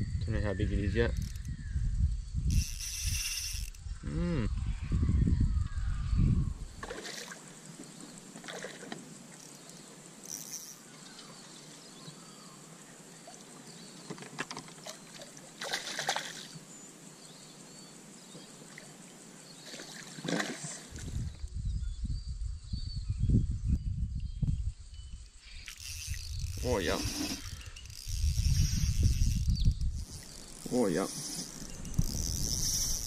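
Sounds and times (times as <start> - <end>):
water splashing: 14.7 - 16.6, 19.6 - 21.1.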